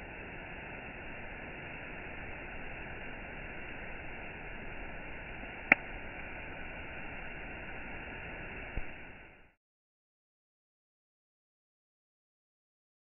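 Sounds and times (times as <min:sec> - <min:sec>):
campfire hissing: 0:00.0 - 0:09.6
campfire popping: 0:01.0 - 0:09.4.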